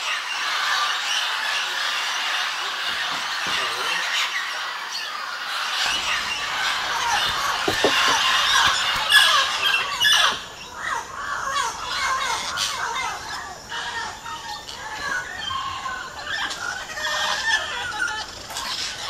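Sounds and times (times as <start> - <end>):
parrots calling: 0.1 - 19.0.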